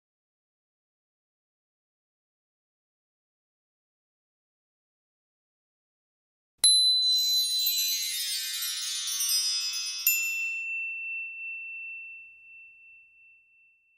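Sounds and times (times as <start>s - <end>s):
shimmering chime cascade: 6.7s - 12.4s
bright ding: 10.0s - 13.9s.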